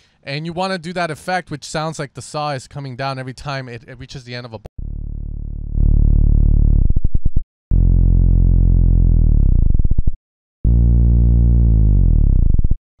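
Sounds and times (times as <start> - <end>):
synth bass notes dropping in pitch: 4.8 - 12.8.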